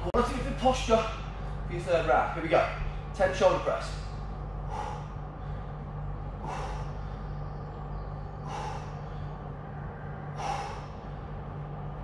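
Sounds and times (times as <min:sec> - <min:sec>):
steady low hum: 0:00.0 - 0:12.0
man exhaling forcefully: 0:04.6 - 0:05.7, 0:06.3 - 0:07.3, 0:08.4 - 0:09.4, 0:10.3 - 0:11.2.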